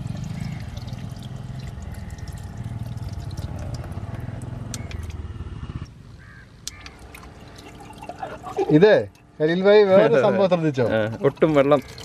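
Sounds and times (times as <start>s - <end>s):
water splashing into basin: 0.0s - 5.2s, 6.7s - 9.2s, 10.8s - 12.0s
electric water pump humming: 0.0s - 5.4s, 6.6s - 9.2s, 10.4s - 12.0s.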